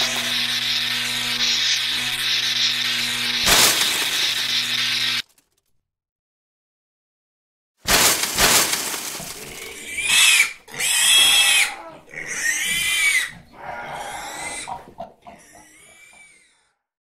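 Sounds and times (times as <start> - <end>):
pig squealing: 0.0 - 3.1, 8.9 - 16.8.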